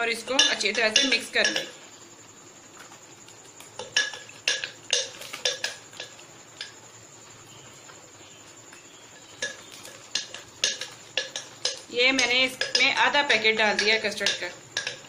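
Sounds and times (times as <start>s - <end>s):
spoon clinking against glass bowl: 0.4s - 1.8s, 3.8s - 6.7s, 9.2s - 15.0s.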